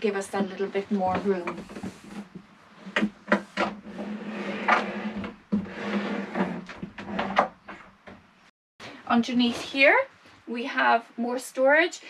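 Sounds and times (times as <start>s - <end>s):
table board rubbing and scraping: 1.0s - 7.9s.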